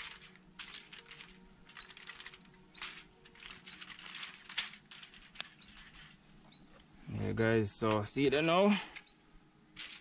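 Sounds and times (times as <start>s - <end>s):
aluminium foil crinkling: 0.0s - 6.3s
faint high chirp: 3.6s - 6.8s, 9.0s - 9.3s.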